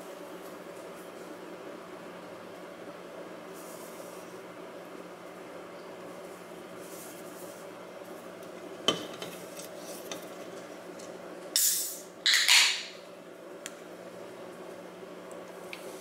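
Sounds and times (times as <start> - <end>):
can ring-pull hiss: 11.6 - 12.0.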